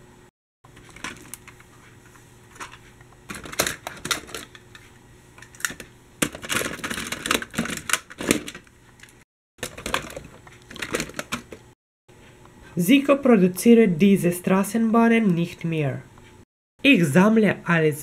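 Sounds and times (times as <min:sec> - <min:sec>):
toy vehicles rattling in a box: 0:06.2 - 0:08.6, 0:09.6 - 0:11.5.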